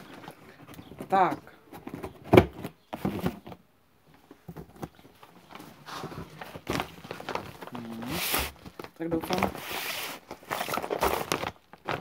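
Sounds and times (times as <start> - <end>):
box clicks and knocks: 0.1 - 3.6
paper crinkling and rustling: 4.6 - 12.0.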